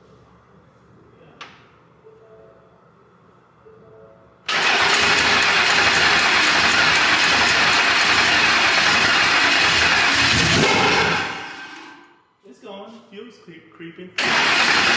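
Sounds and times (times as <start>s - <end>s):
truck engine starting and running: 4.5s - 12.0s, 14.2s - 14.9s.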